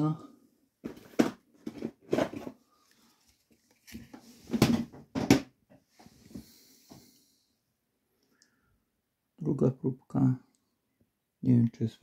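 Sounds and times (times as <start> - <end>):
cardboard packs knocking and rustling: 0.8 - 2.6, 4.0 - 5.5.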